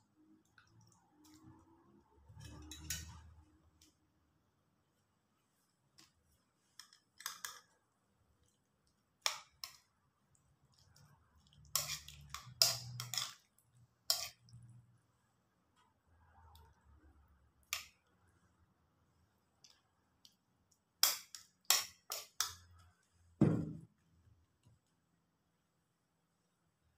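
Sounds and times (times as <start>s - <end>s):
metal spoon scraping ceramic plate: 2.3s - 3.2s, 11.7s - 13.4s, 14.1s - 14.4s.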